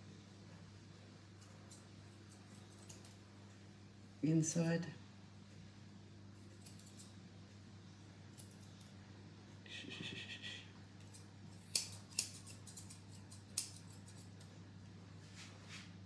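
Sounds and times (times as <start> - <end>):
scissors snipping hair: 1.4 - 3.2, 6.4 - 7.2, 8.3 - 9.0, 11.0 - 14.5.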